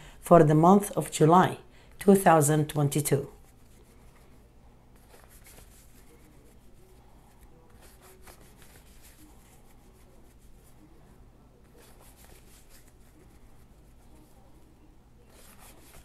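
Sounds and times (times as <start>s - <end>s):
faint low hum: 0.0s - 16.0s
cards being shuffled: 5.0s - 6.3s, 7.4s - 9.6s, 11.7s - 13.4s, 15.3s - 16.0s.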